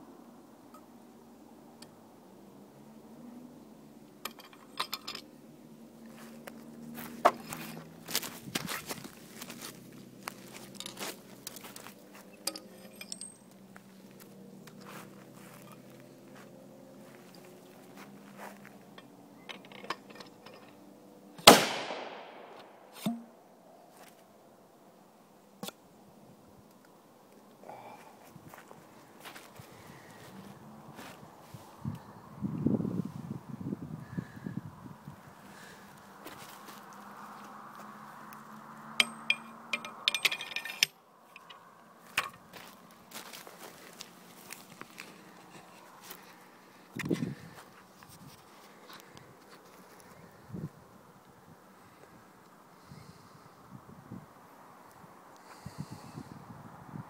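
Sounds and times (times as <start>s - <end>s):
handling clicks and rustling: 4.2s - 5.4s, 6.1s - 16.1s, 17.2s - 21.6s, 38.3s - 50.2s
metal pipes clinking: 4.3s - 5.3s, 10.8s - 13.6s, 39.0s - 42.4s
shotgun firing: 21.4s - 22.8s.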